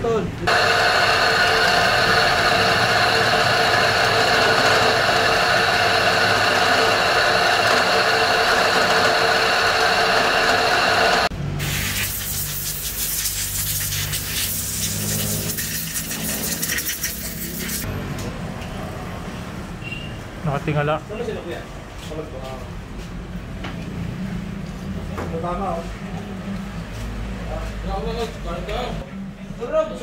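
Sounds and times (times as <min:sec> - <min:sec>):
drill press cutting metal: 0:00.5 - 0:11.3.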